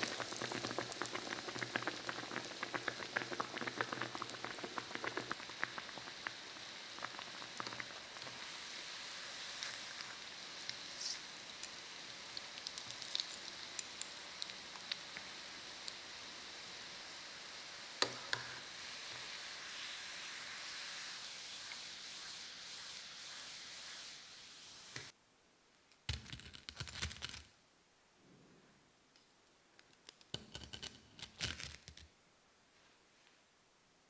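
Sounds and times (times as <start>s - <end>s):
oil sizzling in a pot: 0.0s - 25.2s.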